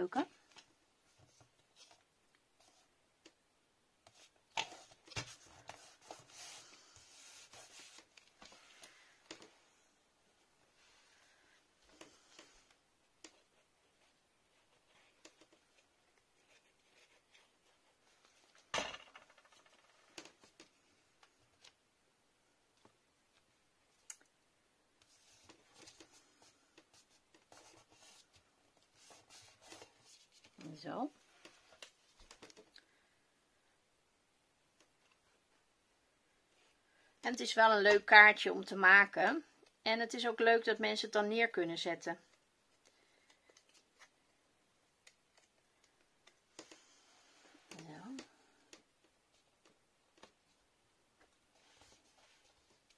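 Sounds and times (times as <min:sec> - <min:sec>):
paper rubbing and rustling: 0:04.1 - 0:08.8
paper rustling and rubbing: 0:04.1 - 0:09.0, 0:25.0 - 0:30.7.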